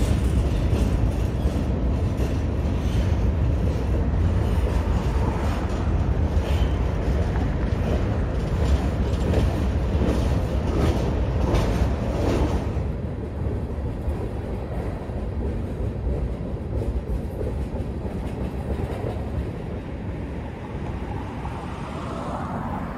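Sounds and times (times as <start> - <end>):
wheels clicking over rail joints: 0.0 - 20.0
train wheels rumbling on rail: 0.0 - 22.9.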